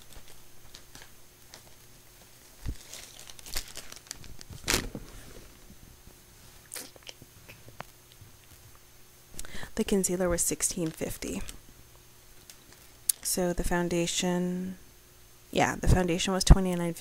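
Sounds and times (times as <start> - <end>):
paper rustling and crinkling: 0.0 - 5.6.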